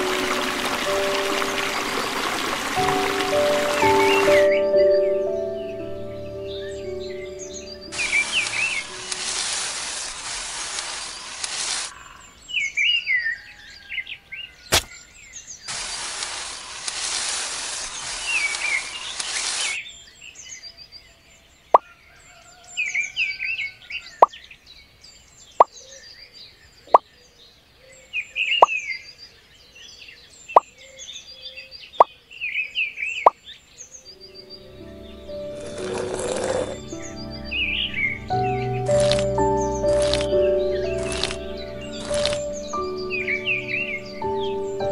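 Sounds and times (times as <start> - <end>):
birds chirping: 0.0 - 16.9, 23.9 - 44.9
seeds plopping: 7.9 - 11.9, 14.7 - 15.0, 38.9 - 43.6
metal rake scratching sand: 8.0 - 12.0.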